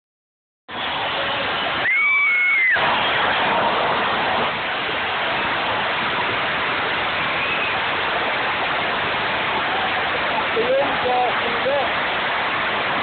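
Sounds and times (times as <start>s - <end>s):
stadium crowd voices: 0.7s - 12.2s.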